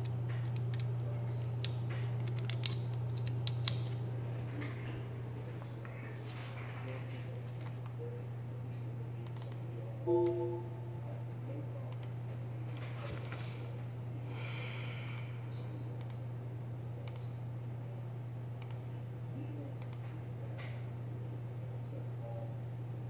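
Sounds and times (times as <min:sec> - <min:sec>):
computer equipment hum: 0:00.0 - 0:23.0
computer mouse clicking: 0:01.6 - 0:04.0, 0:18.6 - 0:18.8
short pitched beep: 0:10.1 - 0:11.1.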